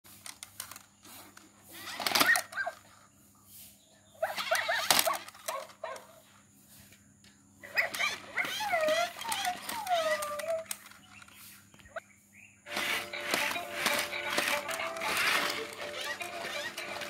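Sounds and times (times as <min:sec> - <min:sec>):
toy robot dog electronic barks: 0:01.8 - 0:02.8, 0:04.2 - 0:06.1, 0:07.6 - 0:10.8.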